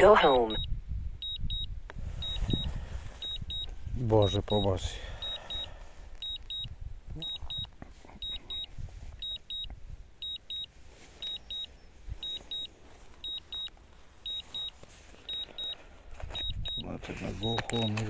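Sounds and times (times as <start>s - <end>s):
high-pitched double beeps: 0.0s - 13.7s, 14.3s - 14.7s, 15.3s - 15.8s.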